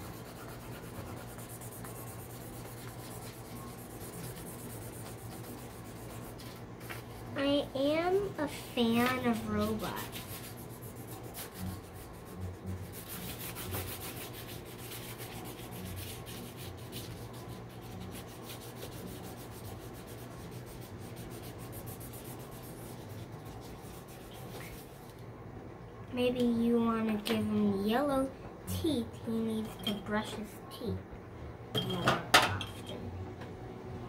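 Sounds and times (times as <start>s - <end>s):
marker scribbling on paper: 0.0s - 7.4s, 9.0s - 25.0s.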